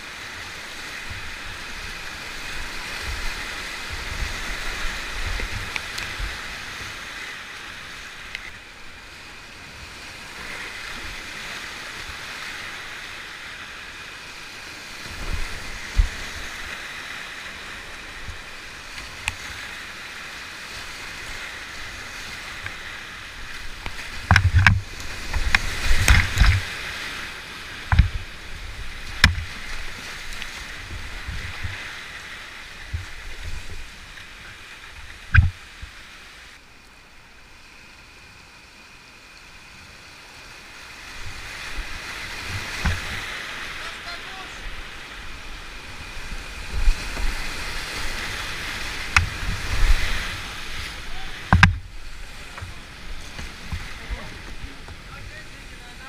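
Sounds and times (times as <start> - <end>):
whitewater rushing: 0.0 - 37.5, 40.2 - 56.0
knocks and splashes against boat: 23.9 - 26.8, 27.8 - 28.2, 29.0 - 31.8, 42.4 - 43.4, 48.8 - 55.1.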